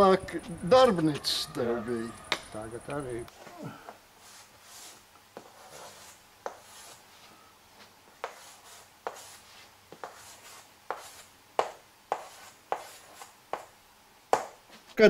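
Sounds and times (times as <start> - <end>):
chalk scratching on blackboard: 4.2 - 7.2, 8.2 - 13.7
chalk tapping board: 4.6 - 7.0, 8.2 - 14.8.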